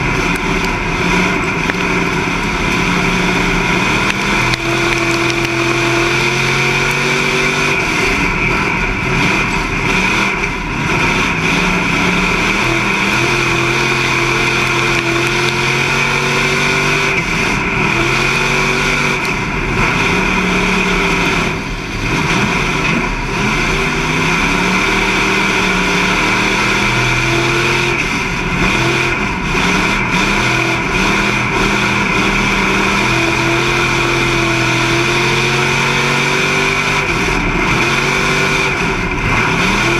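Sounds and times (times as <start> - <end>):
race car engine revving: 0.0 - 39.9
steady high whine: 0.0 - 39.9.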